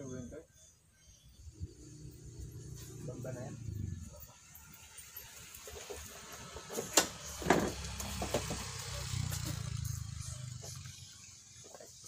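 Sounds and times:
vehicle engine running: 0:05.6 - 0:12.0.

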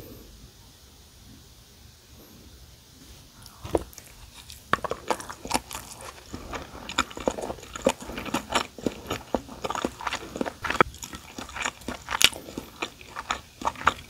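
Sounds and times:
wet chewing sounds: 0:03.4 - 0:14.0.

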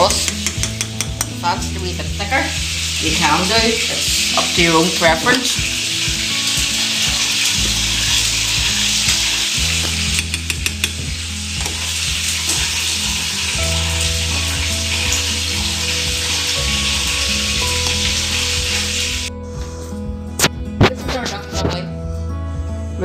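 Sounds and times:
spoon clicking against pan: 0:00.0 - 0:01.4, 0:09.8 - 0:11.0
sauce boiling and sizzling: 0:00.0 - 0:19.3.

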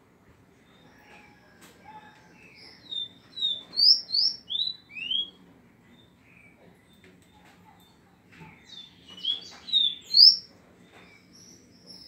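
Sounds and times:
songbird chirping and whistling: 0:02.4 - 0:05.4, 0:08.7 - 0:12.0.

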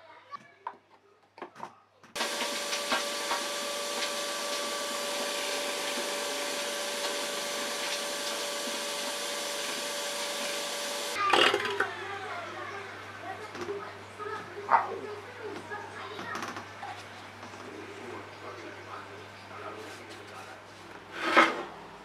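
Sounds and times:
shop vacuum running: 0:02.2 - 0:11.2
vacuum motor spinning down: 0:02.2 - 0:12.2.

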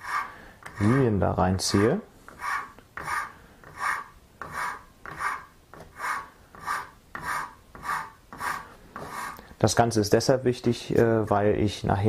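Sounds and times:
hand saw scraping horn: 0:00.0 - 0:09.4.

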